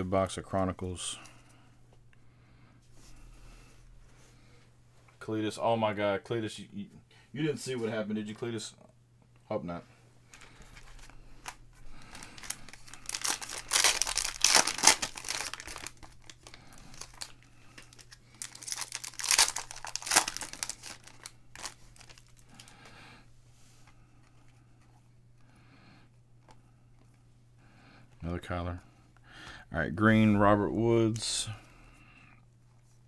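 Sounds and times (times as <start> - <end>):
plastic pack crinkling and tearing: 10.3 - 22.9
cards rustling: 10.3 - 23.0.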